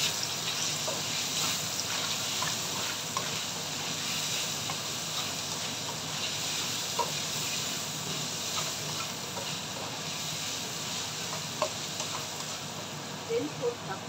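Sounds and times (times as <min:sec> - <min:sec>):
bacon sizzling in frying pan: 0:00.0 - 0:14.0
spatula tapping and scraping pan: 0:11.2 - 0:12.6.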